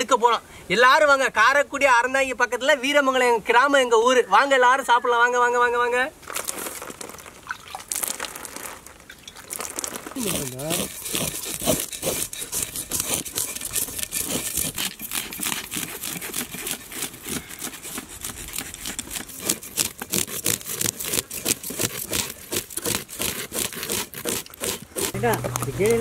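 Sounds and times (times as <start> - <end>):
knife scraping fish scales: 10.1 - 26.0.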